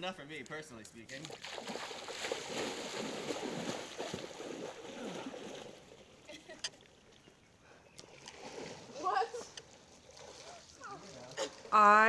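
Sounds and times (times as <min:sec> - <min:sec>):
water splashing and churning: 0:01.1 - 0:07.4, 0:08.0 - 0:12.0.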